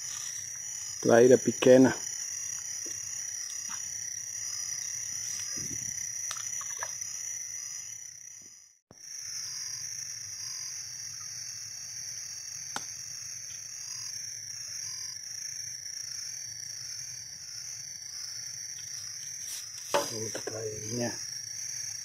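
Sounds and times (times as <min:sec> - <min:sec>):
high-pitched insect chorus: 0:00.0 - 0:22.0
frog calls: 0:06.3 - 0:07.0.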